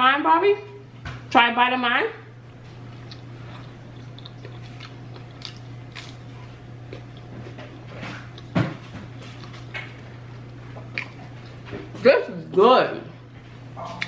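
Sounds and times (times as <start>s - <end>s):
low steady hum: 0.0s - 14.0s
person chewing with mouth clicks: 3.0s - 8.5s, 9.2s - 11.6s.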